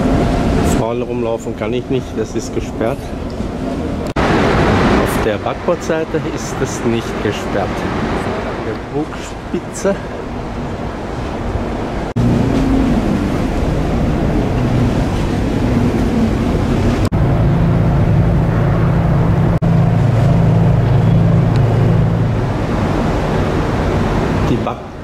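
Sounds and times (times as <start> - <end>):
ship machinery hum: 0.0 - 25.0
wind rushing: 10.1 - 24.5.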